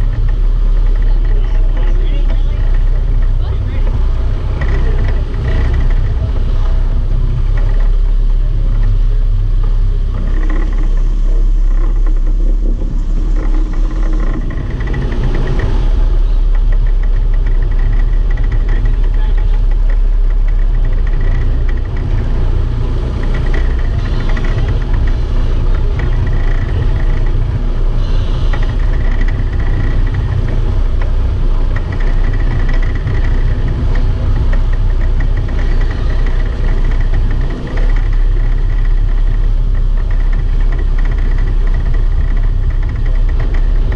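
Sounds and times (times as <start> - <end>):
boat engine running: 0.0 - 43.9.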